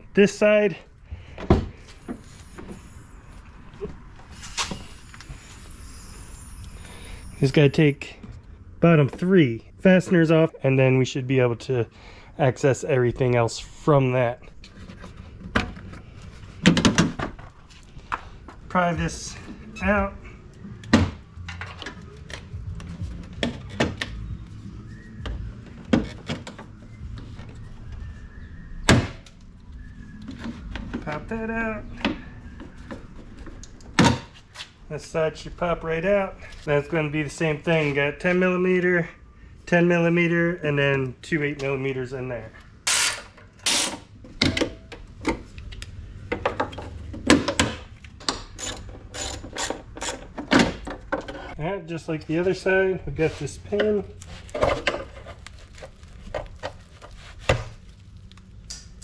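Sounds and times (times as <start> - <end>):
parts being handled: 52.2 - 59.0.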